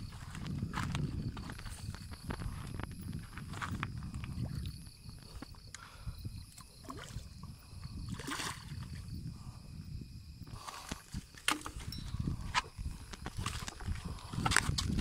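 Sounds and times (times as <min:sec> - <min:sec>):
water splashing and sloshing: 0:06.4 - 0:09.2, 0:10.5 - 0:15.0.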